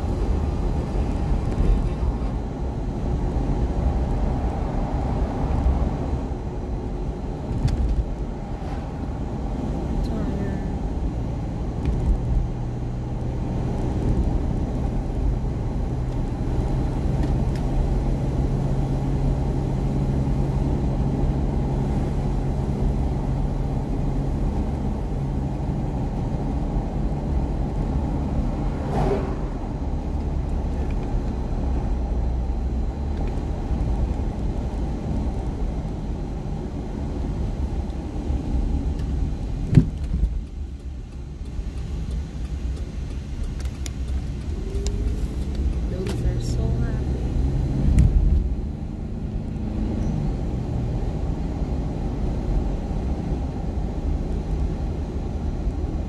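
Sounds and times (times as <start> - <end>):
car cabin road rumble: 0.0 - 56.0.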